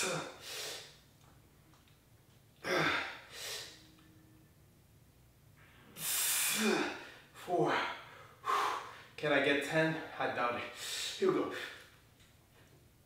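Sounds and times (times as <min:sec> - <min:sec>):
man breathing hard: 0:05.9 - 0:09.2.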